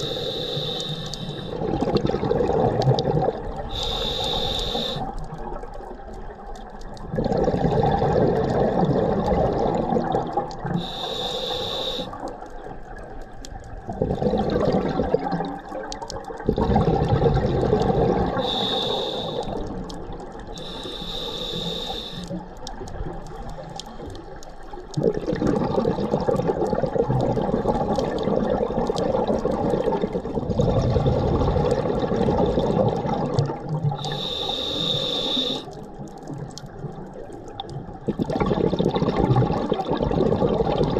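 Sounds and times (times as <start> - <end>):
regulator hissing inhalations: 0.0 - 1.6, 3.7 - 5.1, 10.8 - 12.2, 18.4 - 19.7, 20.6 - 22.4, 34.0 - 35.7
exhaled bubbles rushing: 1.5 - 3.8, 5.4 - 10.8, 13.7 - 18.7, 24.9 - 34.0, 35.9 - 40.9.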